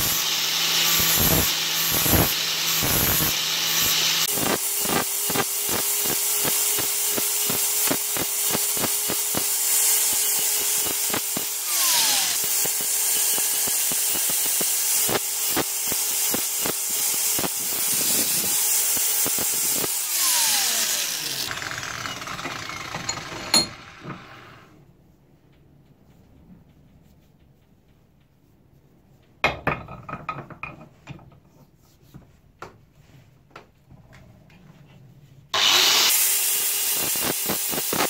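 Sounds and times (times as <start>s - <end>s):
angle grinder grinding metal: 0.0s - 24.7s, 35.6s - 38.0s.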